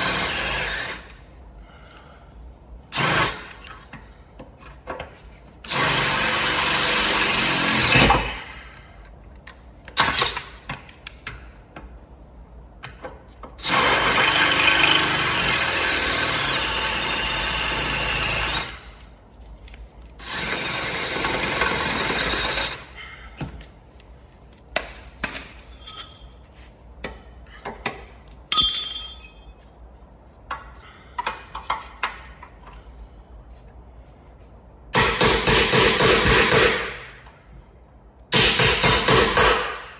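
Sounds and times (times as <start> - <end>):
cordless drill boring through steel: 13.6 - 18.8, 20.2 - 22.8.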